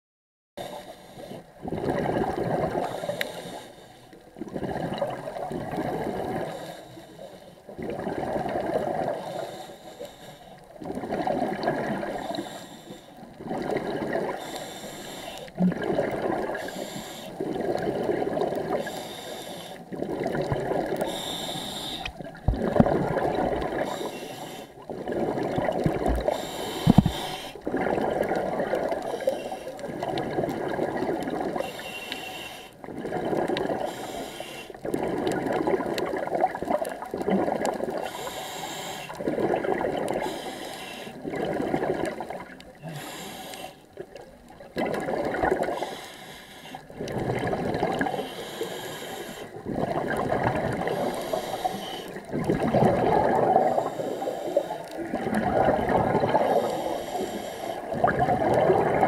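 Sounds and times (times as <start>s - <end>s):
diver exhaling bubbles underwater: 1.6s - 3.0s, 4.4s - 6.6s, 7.7s - 9.4s, 10.8s - 12.4s, 13.4s - 14.4s, 15.6s - 18.9s, 19.9s - 24.1s, 24.9s - 31.7s, 32.8s - 33.9s, 34.8s - 38.2s, 39.2s - 40.4s, 41.2s - 43.2s, 44.6s - 45.9s, 46.9s - 48.4s, 49.5s - 57.1s, 57.7s - 59.0s.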